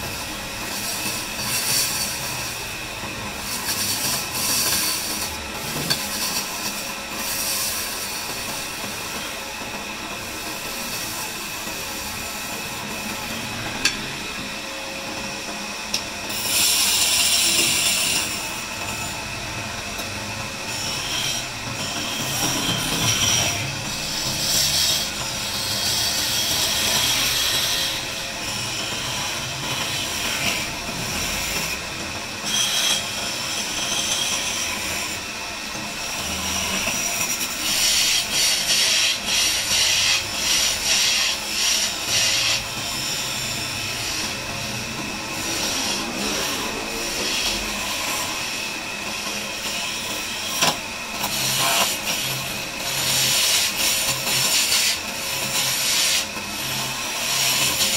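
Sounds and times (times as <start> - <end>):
wood lathe running: 0.0 - 57.9
chisel scraping spinning wood: 16.3 - 19.3, 20.0 - 57.9.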